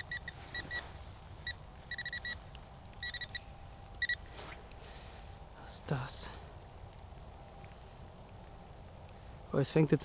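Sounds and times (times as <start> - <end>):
metal detector beeping: 0.0 - 2.4, 3.0 - 4.3.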